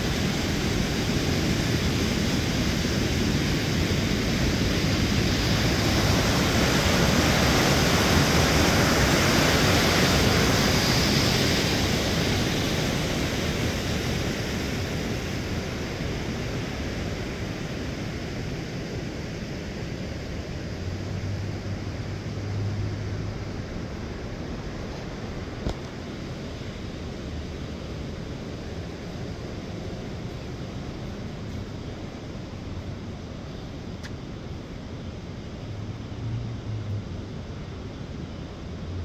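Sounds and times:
river water rushing over weir: 0.0s - 18.3s.

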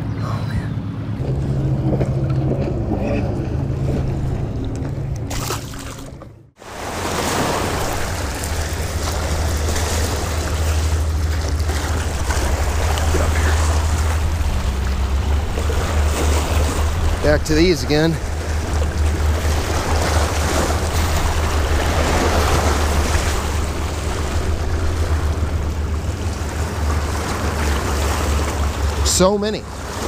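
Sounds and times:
wind rumbling on microphone: 0.0s - 29.0s
lake waves washing over rocks: 5.3s - 30.0s.

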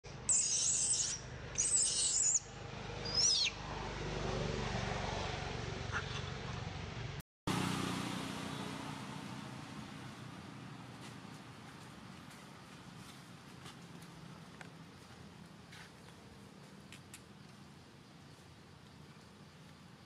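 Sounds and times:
baby monkey shrieking: 0.3s - 3.6s.

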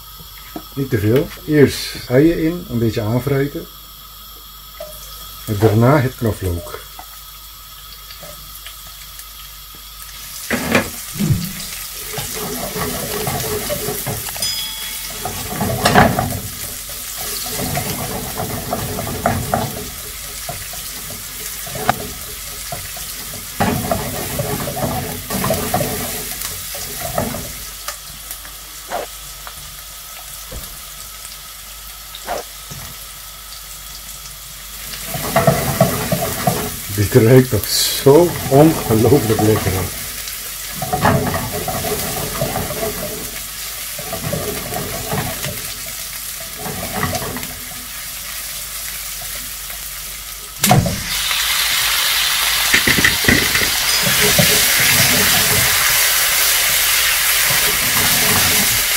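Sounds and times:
onions sizzling in frying pan: 0.0s - 58.9s
spatula scraping a pan: 10.5s - 27.7s, 28.9s - 29.2s, 32.3s - 32.5s, 35.0s - 36.9s, 38.4s - 47.8s, 52.7s - 58.9s.

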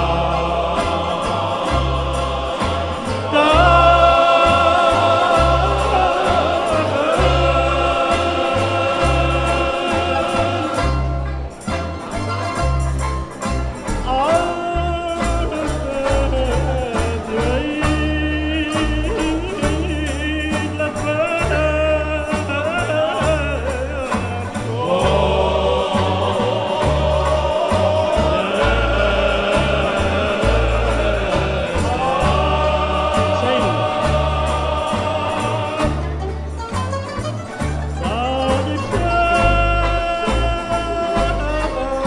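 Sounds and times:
man singing: 0.0s - 11.1s, 13.9s - 36.2s, 38.0s - 42.0s
men singing in chorus: 0.0s - 11.1s, 14.1s - 36.2s
acoustic guitar: 0.0s - 42.0s.

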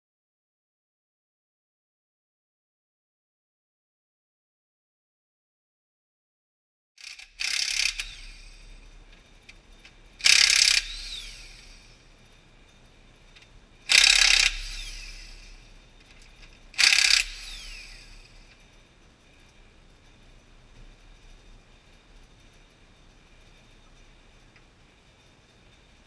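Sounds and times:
wrench motor whine spinning down: 7.0s - 9.0s, 10.2s - 12.1s, 13.9s - 15.9s, 16.7s - 18.7s
impact wrench hammering: 10.2s - 12.0s, 13.9s - 18.6s.

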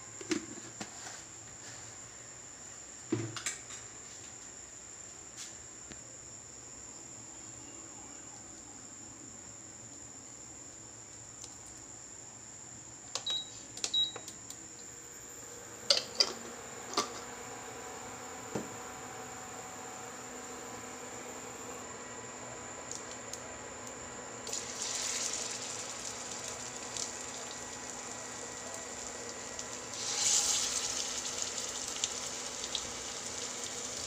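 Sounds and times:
low electrical hum: 0.0s - 34.0s
cooktop control panel beeps: 13.2s - 14.3s.

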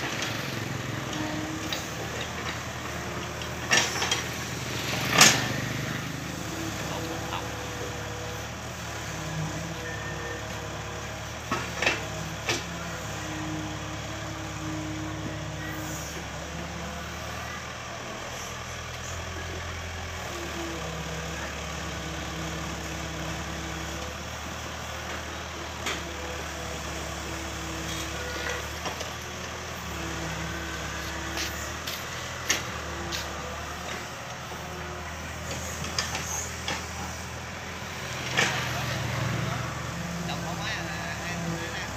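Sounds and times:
excavator diesel engine running: 0.0s - 41.9s.

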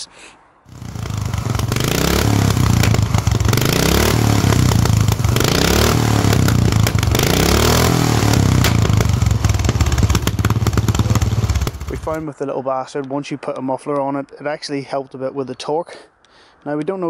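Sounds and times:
lawn mower engine running: 0.7s - 12.2s.

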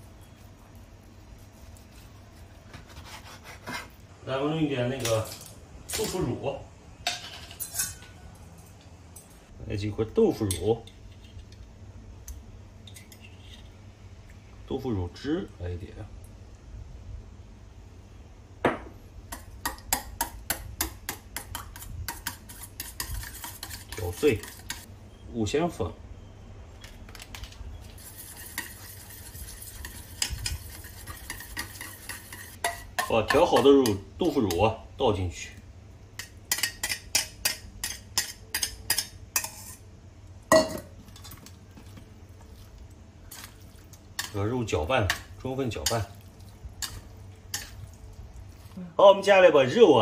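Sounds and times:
chopsticks clinking on metal bowl: 44.2s - 48.0s
metal chopsticks tapping steel bowl: 45.0s - 46.2s.

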